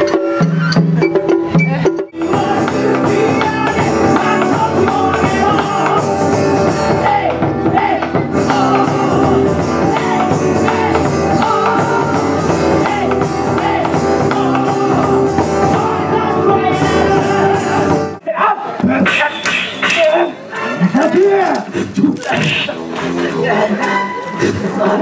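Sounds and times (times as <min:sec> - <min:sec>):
percussion: 0:00.0 - 0:18.2, 0:18.8 - 0:23.2
strummed acoustic guitar: 0:02.1 - 0:18.2
people singing: 0:02.2 - 0:18.2, 0:22.6 - 0:25.0.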